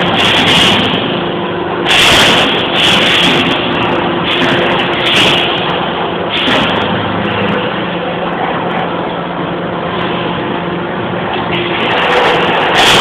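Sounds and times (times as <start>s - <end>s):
wire bending machine running: 0.0s - 13.0s.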